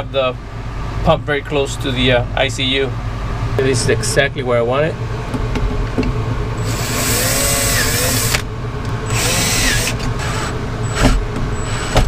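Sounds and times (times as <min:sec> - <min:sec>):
cordless drill whirring: 0:06.6 - 0:08.4, 0:09.1 - 0:12.0.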